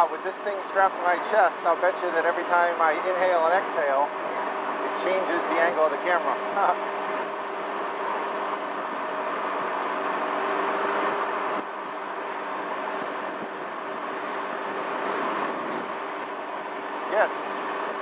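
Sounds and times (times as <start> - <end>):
road noise: 0.0 - 18.0
scooter engine running: 0.0 - 18.0
wind noise: 12.9 - 16.1.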